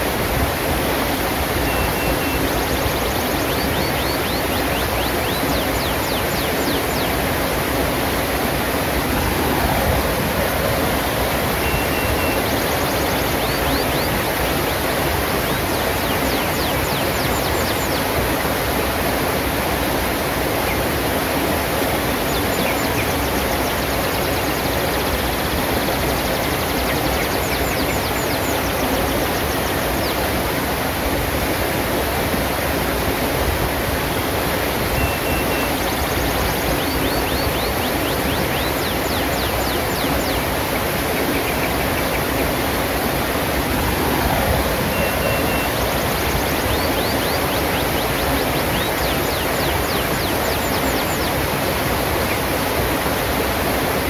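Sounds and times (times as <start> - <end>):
stream rushing over rocks: 0.0 - 54.0
high bird chirps: 11.6 - 14.1, 35.0 - 40.4, 44.9 - 51.3.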